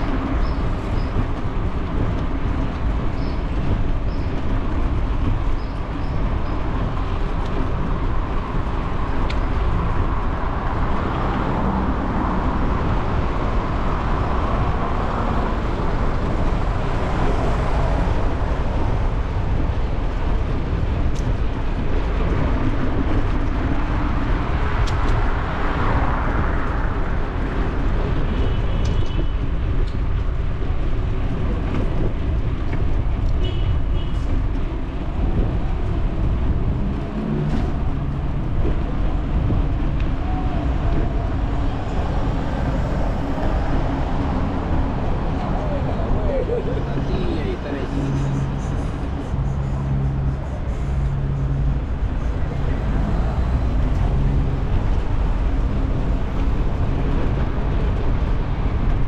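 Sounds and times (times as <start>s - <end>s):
bicycle ride rumble: 0.0s - 59.0s
street traffic passing: 0.0s - 59.0s.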